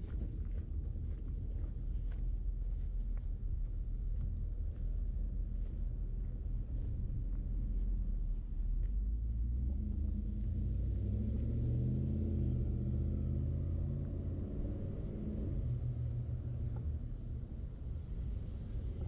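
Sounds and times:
vehicle engine rumble: 0.0s - 19.0s.

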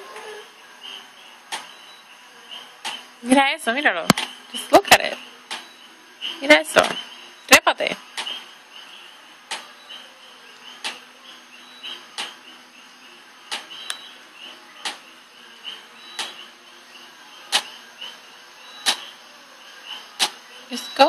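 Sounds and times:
faint rapid chirping: 0.3s - 3.2s, 4.3s - 21.0s.

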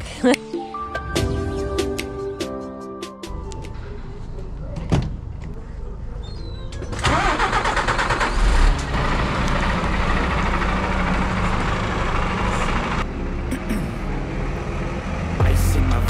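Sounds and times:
diesel engine idling: 3.4s - 16.0s
engine starter cranking: 6.8s - 9.0s.

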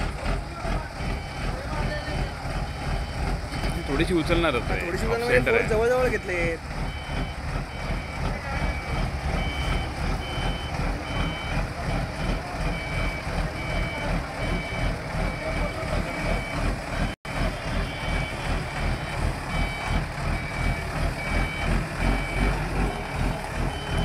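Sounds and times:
diesel engine rumble: 0.0s - 24.0s
two-tone reversing alarm beeping: 6.8s - 24.0s.

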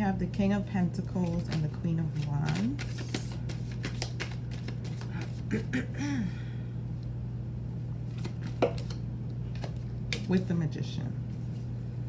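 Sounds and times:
steady low hum: 0.0s - 12.0s
cards being shuffled: 1.0s - 5.6s, 8.1s - 10.5s.

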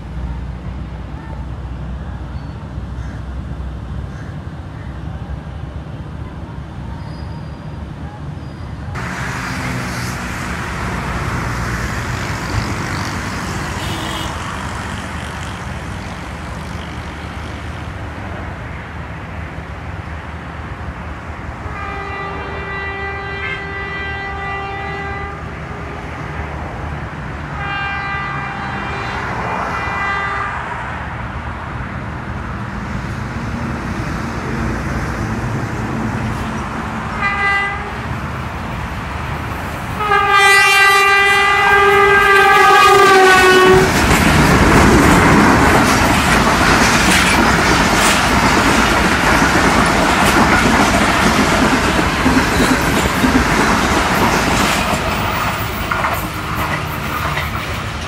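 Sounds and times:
locomotive horn blasts: 13.7s - 14.6s, 21.7s - 26.0s, 27.6s - 30.7s, 37.2s - 38.0s, 40.0s - 44.0s.

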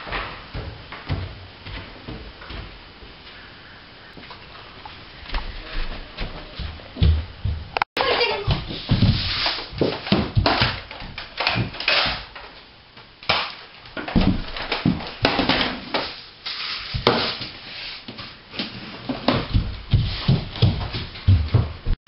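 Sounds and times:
children scuffling on wooden floor: 0.0s - 10.4s, 16.8s - 22.0s.

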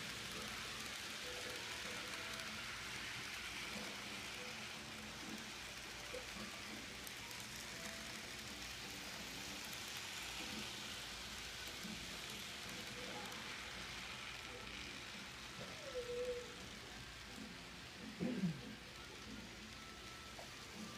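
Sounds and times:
model trains running hiss: 0.0s - 20.9s.

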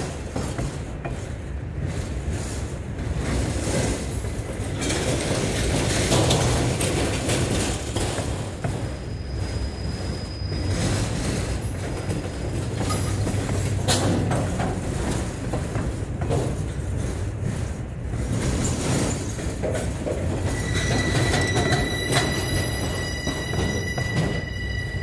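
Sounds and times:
freight cars rolling on rails: 0.0s - 25.0s
high-pitched ring: 20.4s - 25.0s.

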